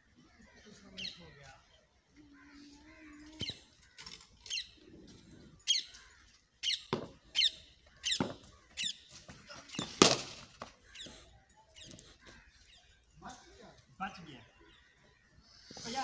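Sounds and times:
birds chirping and squawking: 0:00.0 - 0:16.0.

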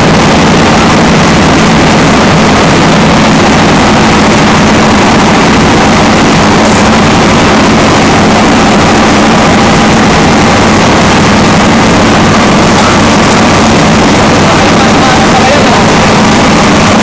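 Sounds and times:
engine-like drone: 0:00.0 - 0:17.0.

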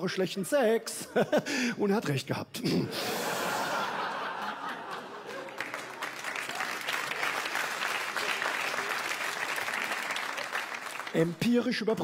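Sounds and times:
audience applauding: 0:03.6 - 0:11.6.

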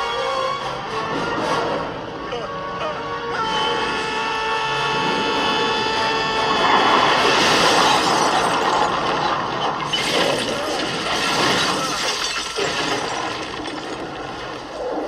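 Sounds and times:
falling debris: 0:07.0 - 0:14.8
metal crunching: 0:07.1 - 0:14.8
glass shattering: 0:07.4 - 0:14.6.

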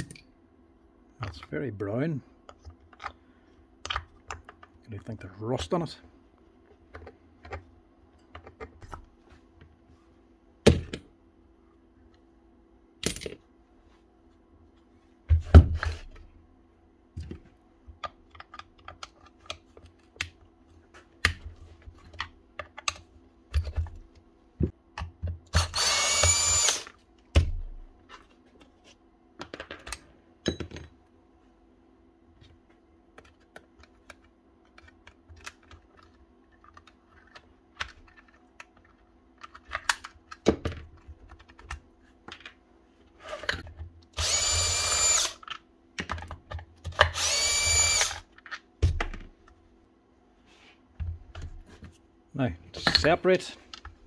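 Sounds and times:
cordless drill turning screws: 0:25.5 - 0:26.9, 0:44.2 - 0:45.4, 0:47.1 - 0:48.3.

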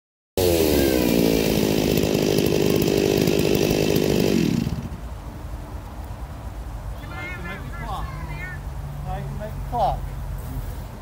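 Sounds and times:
chainsaw cutting wood: 0:00.4 - 0:05.0.

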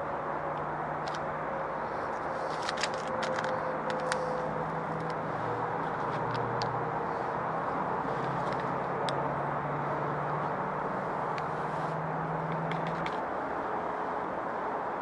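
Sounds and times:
steady rushing noise: 0:00.0 - 0:15.0
packet crinkling in hand: 0:02.4 - 0:05.1.

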